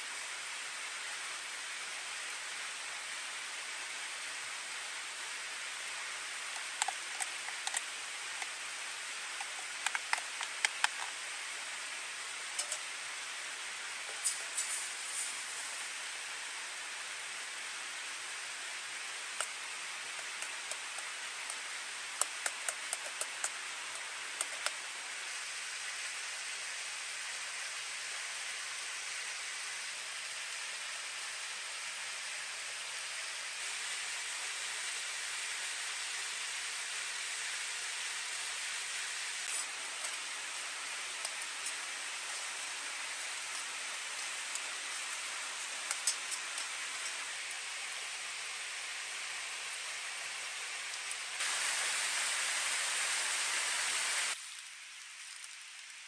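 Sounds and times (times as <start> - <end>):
egg frying in oil: 5.4 - 16.4, 17.3 - 26.0, 33.6 - 47.7, 50.8 - 56.0
oil popping and crackling: 6.5 - 11.3, 19.3 - 24.9, 39.5 - 47.2, 54.4 - 56.0.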